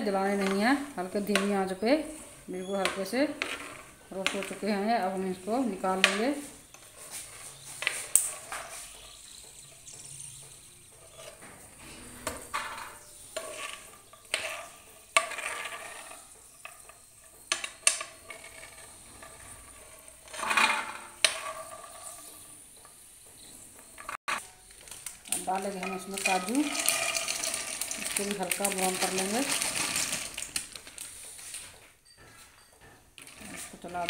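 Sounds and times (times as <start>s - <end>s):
steel spoon scraping a frying pan: 0.2s - 4.9s, 5.9s - 22.6s, 25.6s - 30.4s, 33.2s - 34.0s
faint sizzle of hot ghee: 25.1s - 30.7s.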